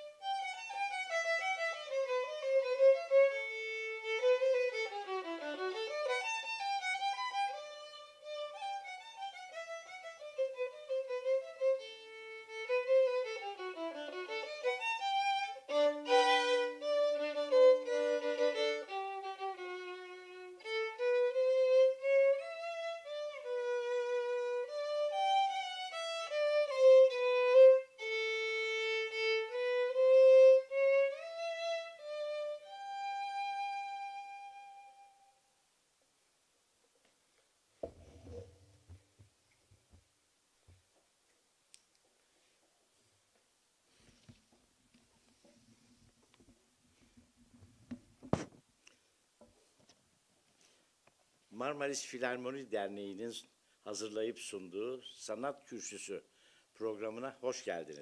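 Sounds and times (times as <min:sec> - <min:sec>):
solo violin slow melody: 0:00.0 - 0:35.5.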